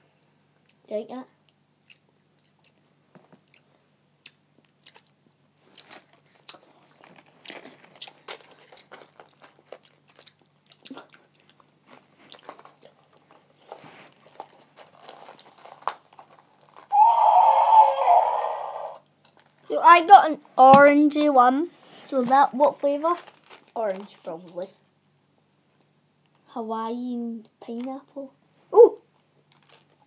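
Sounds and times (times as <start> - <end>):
chewing close to microphone: 1.8 - 16.9
loud harsh noise: 16.9 - 19.0.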